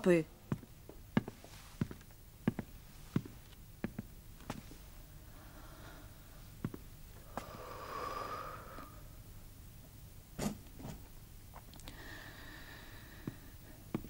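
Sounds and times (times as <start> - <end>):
soft breathy rustle: 1.3 - 2.0.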